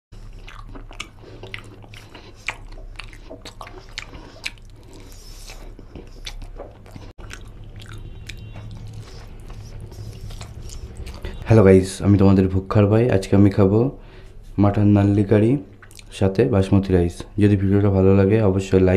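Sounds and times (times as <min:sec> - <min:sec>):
person chewing food: 0:00.2 - 0:11.4, 0:15.7 - 0:16.1.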